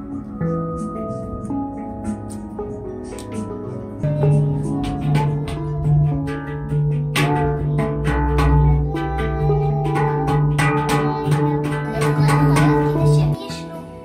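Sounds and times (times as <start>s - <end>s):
handpan notes ringing: 0.0s - 14.0s.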